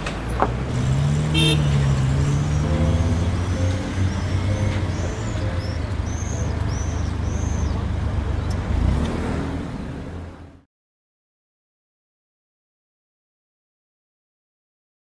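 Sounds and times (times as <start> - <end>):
road traffic rumble: 0.0 - 10.7.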